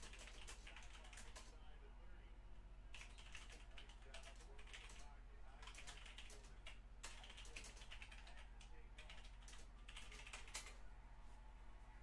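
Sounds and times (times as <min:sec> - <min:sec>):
faint keyboard typing: 0:00.0 - 0:01.6, 0:02.9 - 0:10.8.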